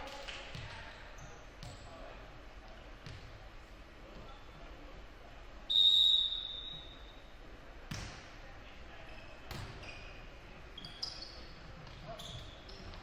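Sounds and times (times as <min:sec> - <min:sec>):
referee's whistle blast: 0:05.7 - 0:07.1.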